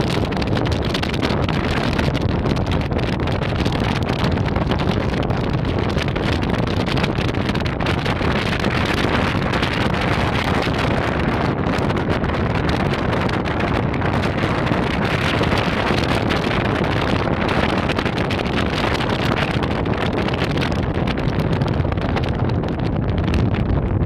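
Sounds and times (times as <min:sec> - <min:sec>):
low rumble of boat and water: 0:00.0 - 0:24.0
wind buffeting microphone: 0:00.0 - 0:24.0.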